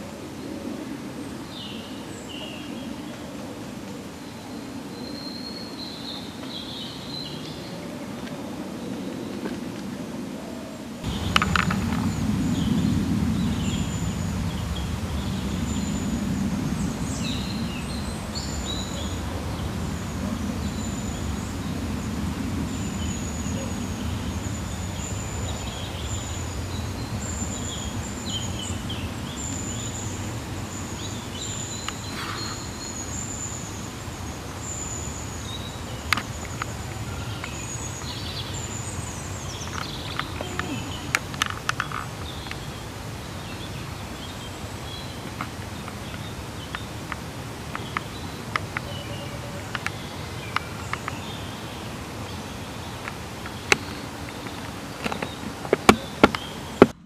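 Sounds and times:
birds chirping: 10.4s - 57.0s
steady low rumble: 11.0s - 40.1s.

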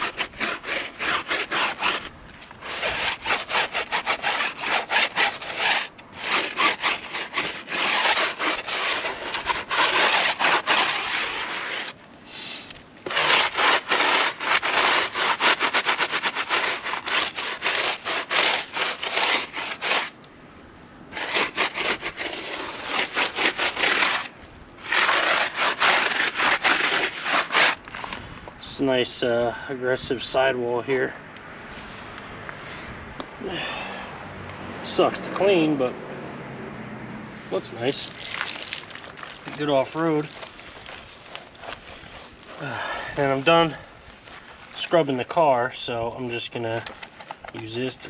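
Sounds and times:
scrub brush scrubbing a tyre: 0.0s - 20.2s, 21.1s - 29.3s, 37.5s - 48.0s.

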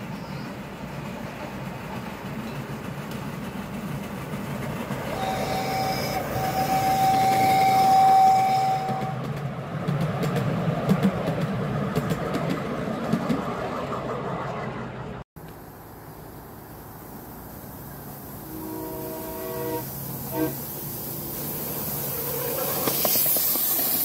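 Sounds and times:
train whistle blast: 5.1s - 9.2s, 18.4s - 20.8s.

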